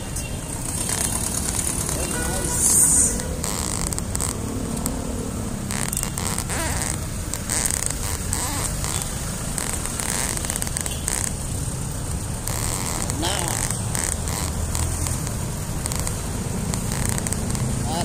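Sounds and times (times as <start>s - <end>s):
bicycle tyres rolling on pavement: 0.3s - 18.0s.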